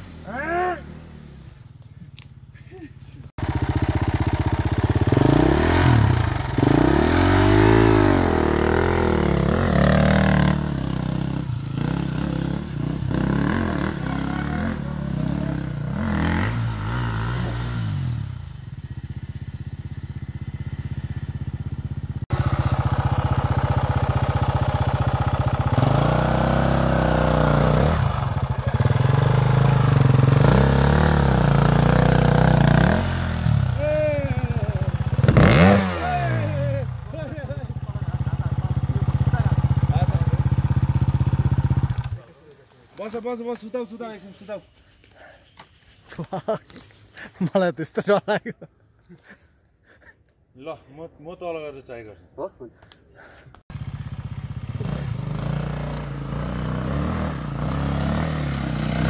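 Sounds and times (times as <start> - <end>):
dirt bike engine revving: 3.4 - 42.2, 53.7 - 59.0.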